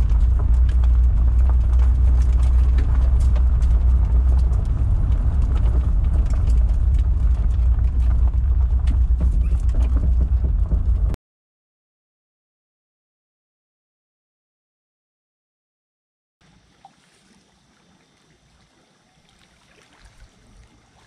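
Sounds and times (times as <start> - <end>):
small stones ticking: 0.0 - 11.1
car engine drone: 0.0 - 11.2
gravel crunching under tyres: 0.0 - 11.2.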